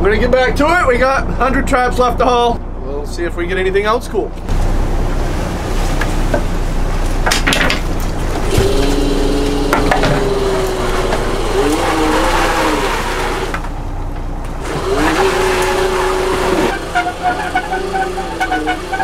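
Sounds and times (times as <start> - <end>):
boat engine running: 4.4 - 19.0
engine whine: 7.8 - 19.0.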